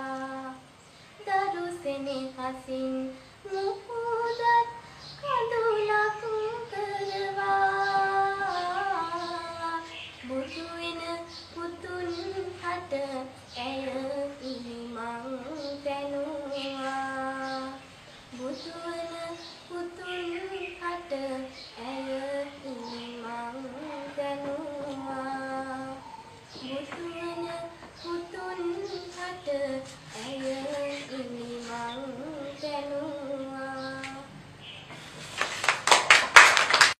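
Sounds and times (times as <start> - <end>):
loud clapping: 35.3 - 37.0.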